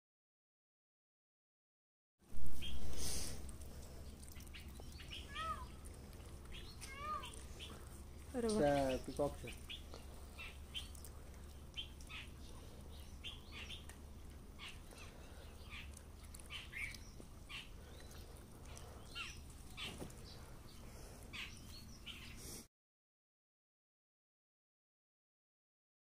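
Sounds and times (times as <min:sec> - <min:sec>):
low steady hum: 0:02.3 - 0:22.6
small birds chirping: 0:02.4 - 0:22.7.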